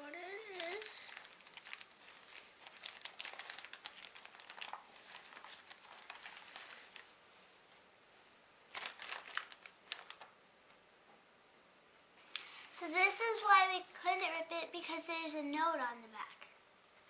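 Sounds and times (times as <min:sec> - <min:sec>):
wrapping paper crinkling: 0:00.1 - 0:07.2, 0:08.7 - 0:10.4.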